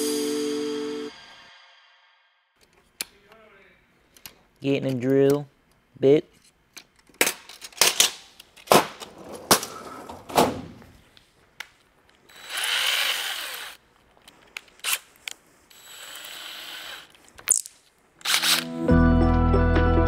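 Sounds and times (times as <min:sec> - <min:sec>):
tools and bits clattering: 0:06.4 - 0:09.8
cordless drill whirring: 0:12.3 - 0:13.8, 0:14.8 - 0:15.1, 0:15.7 - 0:17.2
drill chuck ratcheting: 0:12.3 - 0:13.8, 0:15.7 - 0:17.2, 0:18.2 - 0:18.7.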